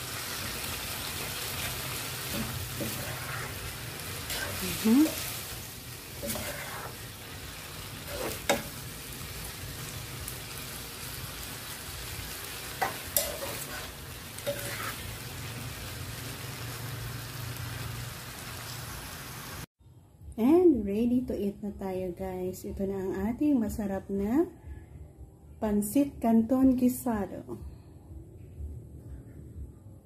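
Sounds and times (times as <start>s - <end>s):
noodles sizzling in a frying pan: 0.0s - 19.7s.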